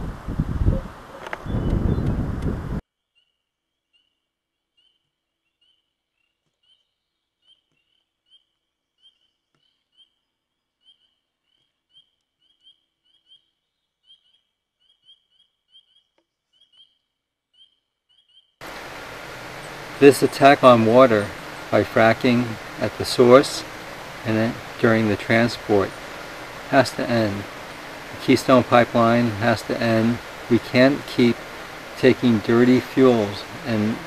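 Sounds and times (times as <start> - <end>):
frogs peeping chorus: 10.8 - 34.0.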